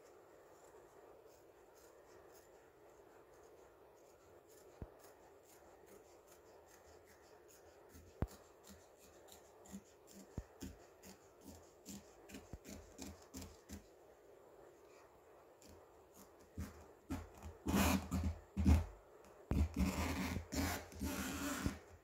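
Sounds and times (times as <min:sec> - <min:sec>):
scissors snipping fabric: 0:04.5 - 0:13.8.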